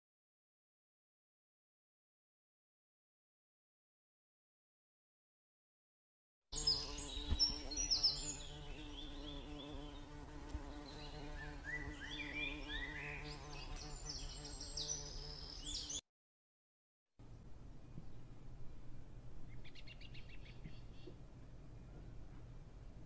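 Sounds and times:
small birds chirping: 6.6 - 16.0, 19.4 - 22.5.

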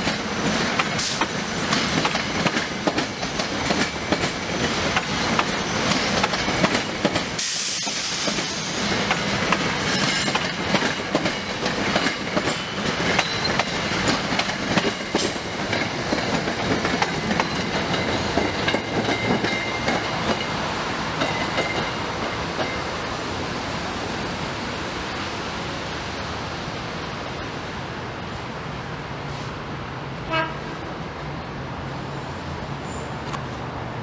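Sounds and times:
train wheels clacking: 0.0 - 22.9
train low rumble: 0.0 - 34.0
distant train horn toot: 30.2 - 30.7.

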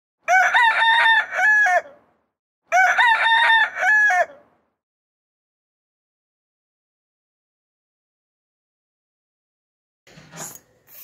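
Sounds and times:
rooster crowing: 0.2 - 2.1, 2.7 - 4.6.

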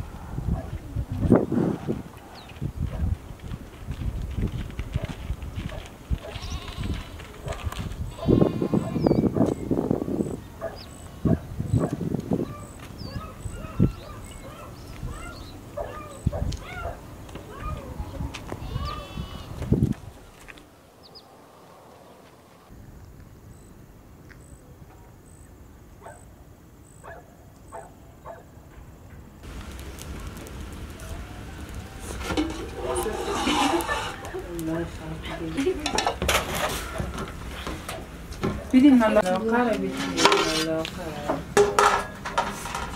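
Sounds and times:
farm animal bleating: 6.2 - 7.4, 8.1 - 9.2, 18.5 - 19.6
wood fire crackling and popping: 29.4 - 42.9
thumps and rustling: 32.0 - 34.4, 35.8 - 38.8.

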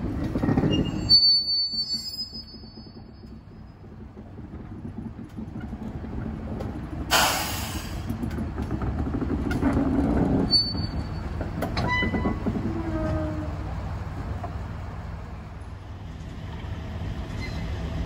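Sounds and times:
diesel locomotive running: 0.0 - 18.0
air hiss burst: 7.1 - 8.0.

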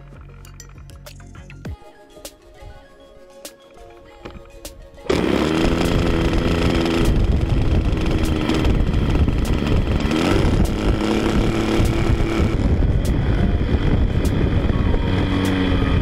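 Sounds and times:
model airplane engine revving: 5.1 - 16.0.

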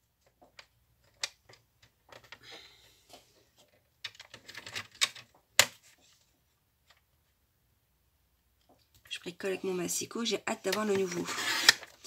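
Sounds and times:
plastic clicks and clatter: 0.2 - 2.4, 3.6 - 5.8
paper trimmer blade sliding: 10.9 - 12.0.

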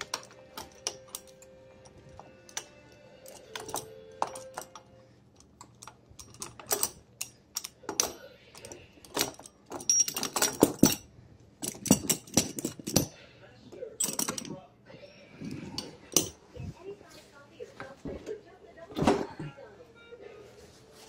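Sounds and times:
metal tool clicking: 5.5 - 13.1.

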